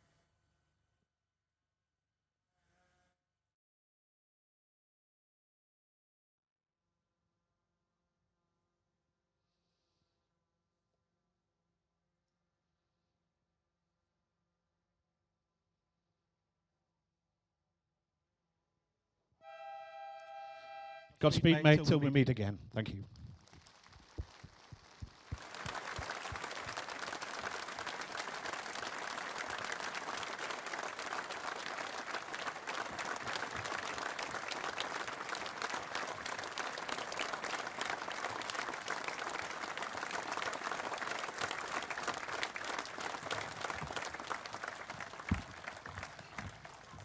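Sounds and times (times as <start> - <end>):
large crowd applauding: 21.5 - 47.0.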